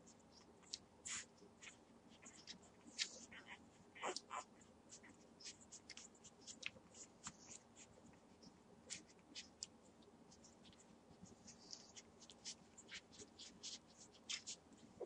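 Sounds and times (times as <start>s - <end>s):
puppies suckling: 0.6s - 9.7s.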